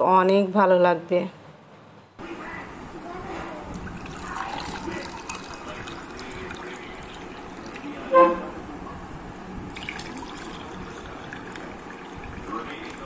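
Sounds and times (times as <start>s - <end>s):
drink pouring into glass: 3.7s - 8.1s, 9.7s - 13.0s
horn-like toot: 8.1s - 8.6s.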